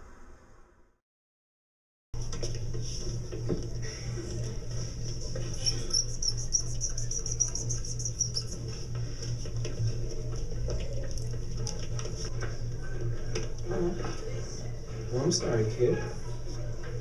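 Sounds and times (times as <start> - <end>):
steady low hum: 2.2 - 17.0
marker squeaking on paper: 5.4 - 8.8.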